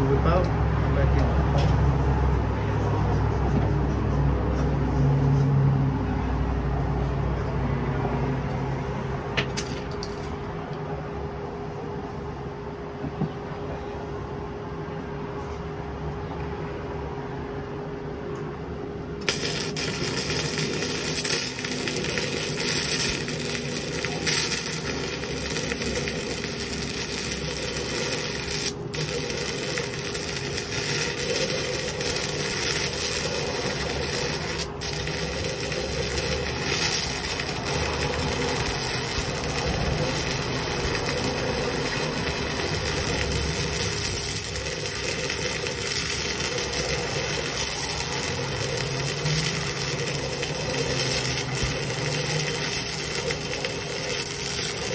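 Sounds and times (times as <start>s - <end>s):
welding arc crackling and hissing: 19.2s - 54.9s.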